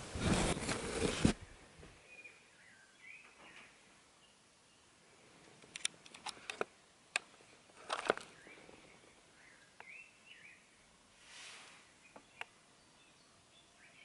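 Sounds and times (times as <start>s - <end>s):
faint bird chirps: 1.4s - 5.2s, 8.2s - 10.9s, 11.6s - 14.0s.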